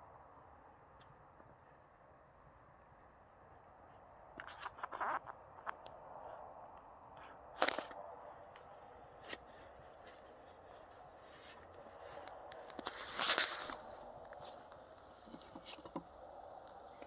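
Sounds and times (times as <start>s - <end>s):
steady low rush: 5.4s - 17.0s.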